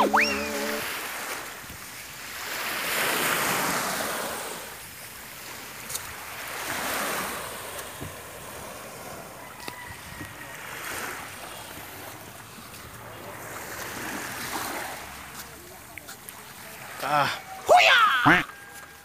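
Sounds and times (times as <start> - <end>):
waves washing onto shore: 0.0 - 19.0.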